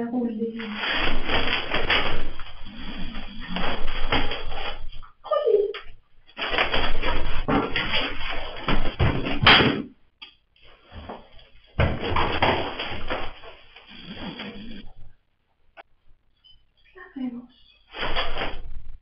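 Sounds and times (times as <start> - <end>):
scuffling and knocking: 0.6 - 5.2, 6.3 - 9.8, 10.8 - 14.8.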